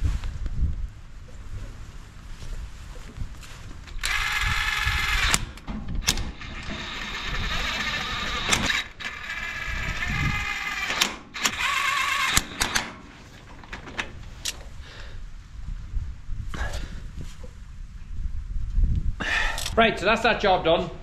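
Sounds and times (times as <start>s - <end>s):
power ratchet motor whine: 3.9s - 13.0s
ratchet clicks: 3.9s - 13.0s.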